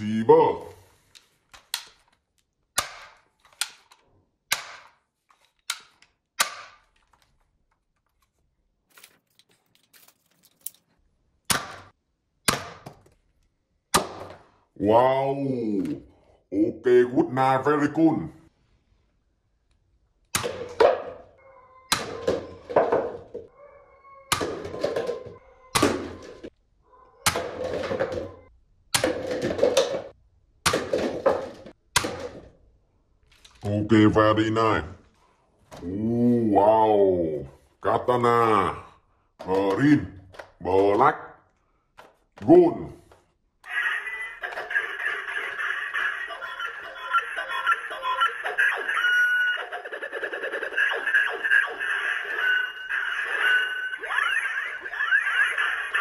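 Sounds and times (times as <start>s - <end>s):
paper cups knocked over: 27.3s - 32.5s.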